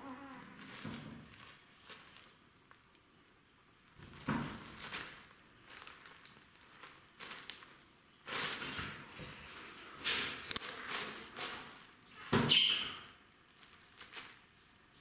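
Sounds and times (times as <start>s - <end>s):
cellophane bag crinkling: 0.4s - 2.4s, 4.2s - 8.8s, 13.3s - 14.6s.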